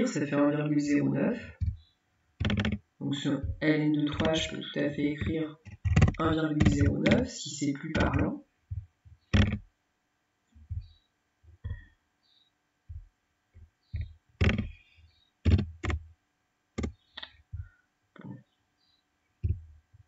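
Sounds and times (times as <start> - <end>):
computer mouse clicking: 2.4 - 2.8, 5.2 - 7.3, 14.0 - 14.7
low thumps against desk: 10.6 - 11.0.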